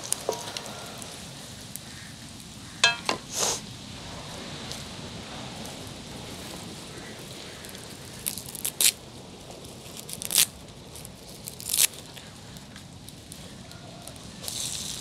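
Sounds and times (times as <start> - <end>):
low frying sizzle: 0.0 - 15.0
sharp crackles: 5.6 - 15.0.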